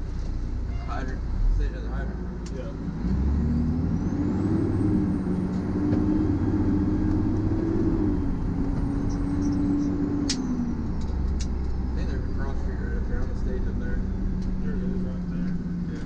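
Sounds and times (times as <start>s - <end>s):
fire truck engine running: 0.0s - 16.0s
road noise: 0.0s - 16.0s
sharp clicks: 10.2s - 11.8s.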